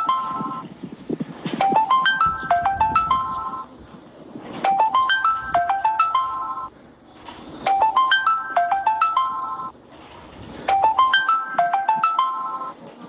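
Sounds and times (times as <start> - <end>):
phone ringtone melody: 0.0 - 0.7, 1.6 - 3.7, 4.6 - 6.7, 7.6 - 9.8, 10.7 - 12.8.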